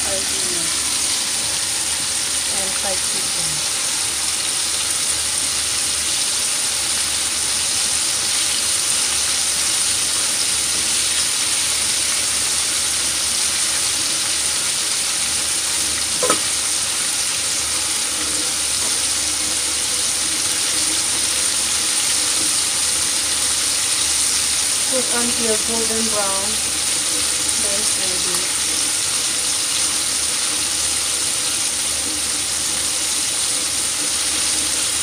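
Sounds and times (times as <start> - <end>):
chicken frying in hot oil: 0.0 - 35.0.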